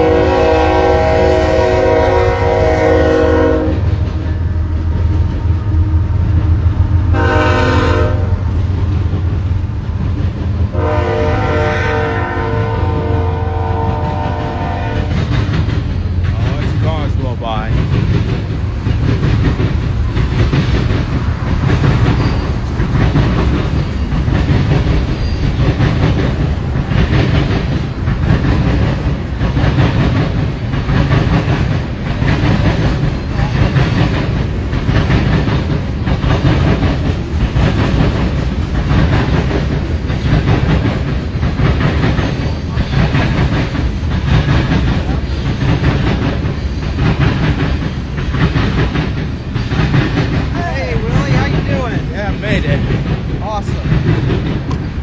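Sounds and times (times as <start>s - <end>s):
freight train rolling past: 0.0s - 55.0s.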